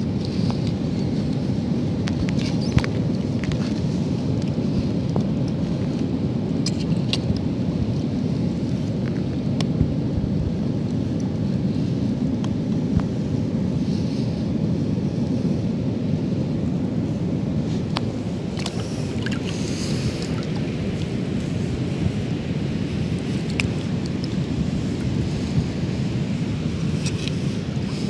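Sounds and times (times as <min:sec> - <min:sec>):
wind: 0:00.0 - 0:28.0
surf rumbling: 0:07.2 - 0:28.0.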